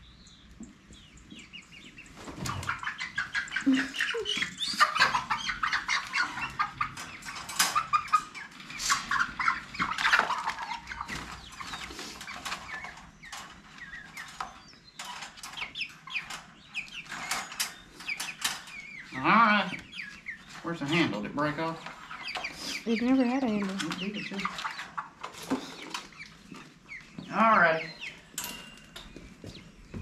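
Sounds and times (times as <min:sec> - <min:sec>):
chickens squawking: 0:00.8 - 0:28.4.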